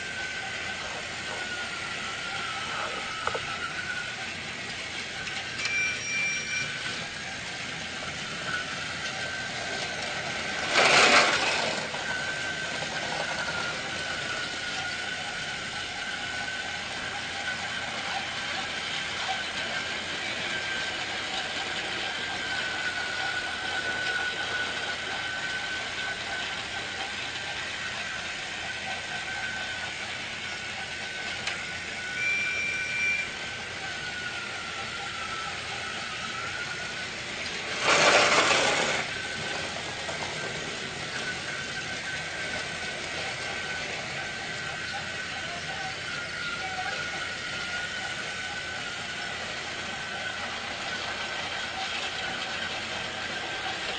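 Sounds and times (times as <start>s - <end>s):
loud noisy burst: 0.0s - 28.6s, 29.5s - 53.9s
toy train motor whirring: 0.0s - 53.9s
short high beeps: 5.6s - 6.8s, 32.1s - 33.3s.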